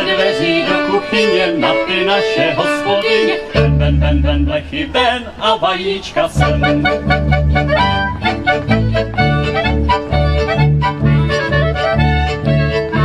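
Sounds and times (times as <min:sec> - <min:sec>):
fiddles playing lively tune: 0:00.0 - 0:05.3, 0:06.4 - 0:13.0
man singing: 0:00.0 - 0:07.4
low bass notes: 0:03.5 - 0:05.3, 0:06.4 - 0:13.0.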